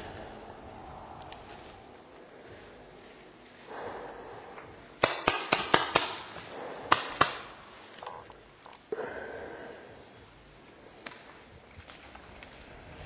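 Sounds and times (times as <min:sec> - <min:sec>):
paintball marker firing: 0:05.0 - 0:08.1.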